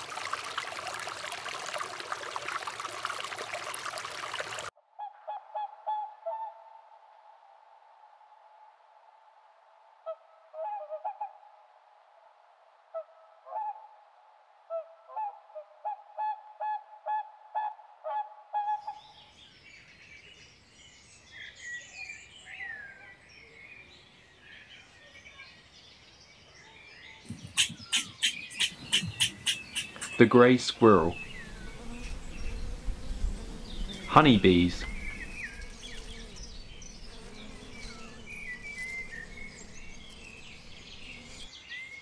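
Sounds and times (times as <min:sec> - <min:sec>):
small birds chirping: 0:19.0 - 0:42.0
waterfowl honking: 0:27.6 - 0:30.2
background hiss: 0:28.5 - 0:41.6.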